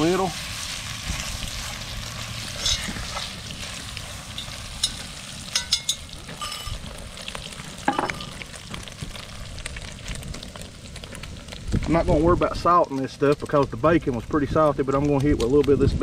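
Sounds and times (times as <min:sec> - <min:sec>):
food sizzling in a pot: 0:00.0 - 0:12.9
fork scraping and clicking on pot: 0:02.6 - 0:03.3.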